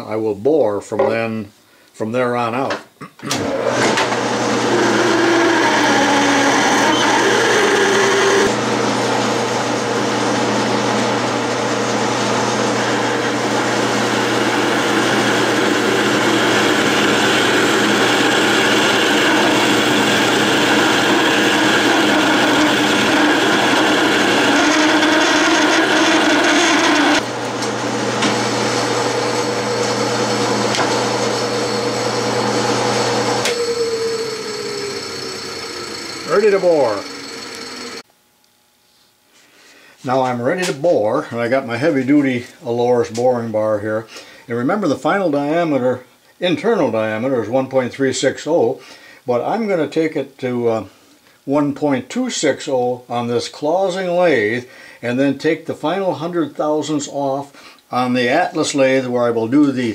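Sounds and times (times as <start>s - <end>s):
spindle winding down: 3.3s - 8.8s, 10.3s - 38.0s
drill cutting metal: 3.4s - 8.6s, 12.3s - 38.0s
lathe motor hum: 3.4s - 38.0s.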